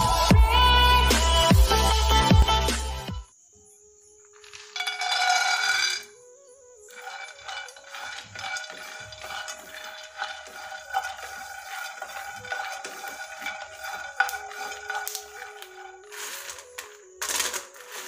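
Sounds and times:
peanuts rattling in a pan: 0:04.3 - 0:06.1, 0:06.9 - 0:18.0
soft background music: 0:14.1 - 0:18.0.

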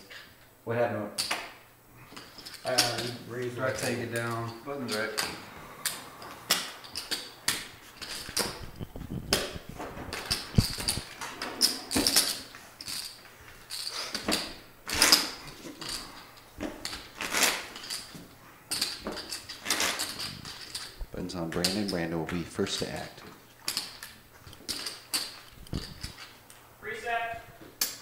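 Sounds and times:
clay poker chips clicking: 0:04.9 - 0:08.6.

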